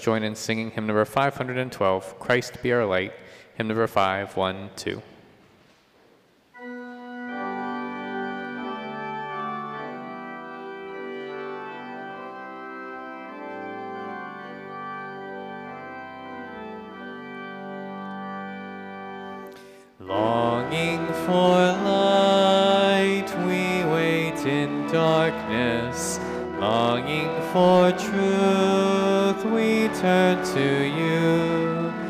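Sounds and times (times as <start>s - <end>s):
organ playing sustained chords: 6.5s - 32.0s
people singing: 20.0s - 32.0s.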